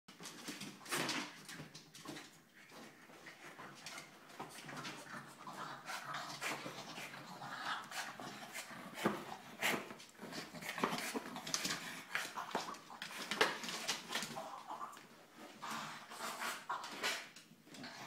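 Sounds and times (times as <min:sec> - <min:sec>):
dog growling: 0:04.8 - 0:09.6.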